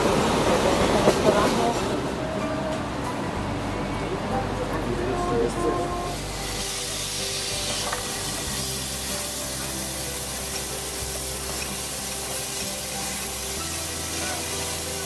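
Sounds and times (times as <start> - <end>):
low sustained tones: 0.0 - 15.0
steam hissing: 5.9 - 15.0.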